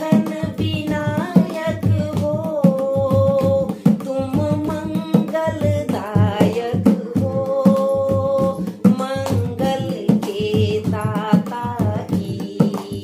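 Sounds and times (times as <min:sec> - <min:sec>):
hand drum beat: 0:00.0 - 0:13.0
woman singing devotional song: 0:00.0 - 0:13.0
hand claps: 0:07.7 - 0:13.0.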